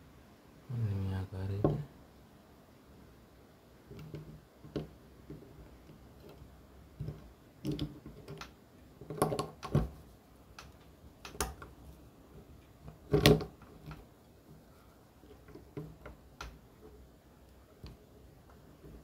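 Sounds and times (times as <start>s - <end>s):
small parts clicking and knocking: 3.9s - 9.9s.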